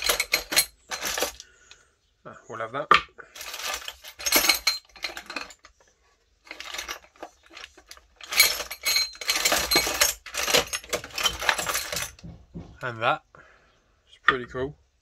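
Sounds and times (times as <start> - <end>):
metal hardware rattling in a plastic tub: 0.0 - 1.5, 3.3 - 12.9.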